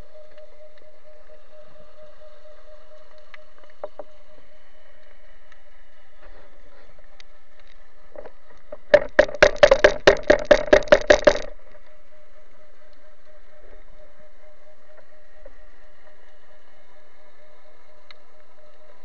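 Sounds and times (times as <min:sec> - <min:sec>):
faint steady underwater hum: 0:00.0 - 0:19.0
rapid sharp clicks underwater: 0:07.2 - 0:12.1.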